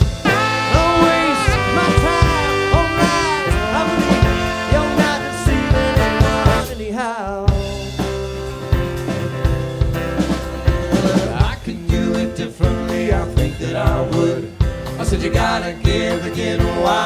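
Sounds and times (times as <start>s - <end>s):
horn-led band playing: 0.0s - 7.0s.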